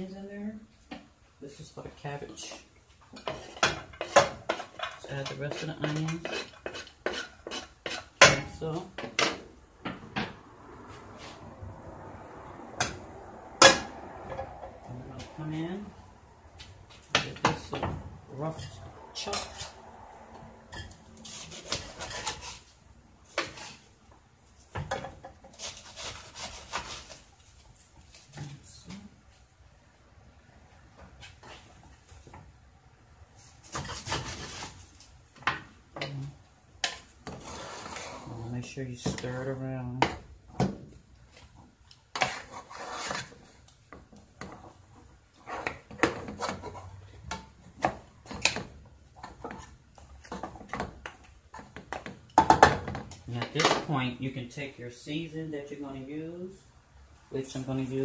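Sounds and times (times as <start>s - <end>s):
wooden spoon knocking and scraping pot: 2.4s - 10.4s, 41.6s - 53.9s
knife chopping cabbage on board: 25.6s - 27.2s.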